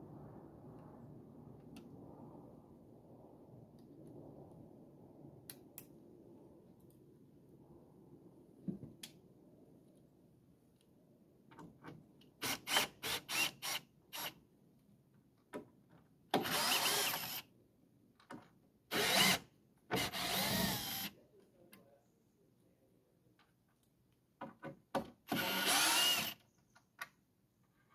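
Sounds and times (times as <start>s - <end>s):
cordless drill motor whine: 16.4s - 17.4s, 18.9s - 19.4s, 20.0s - 21.1s, 25.3s - 26.4s.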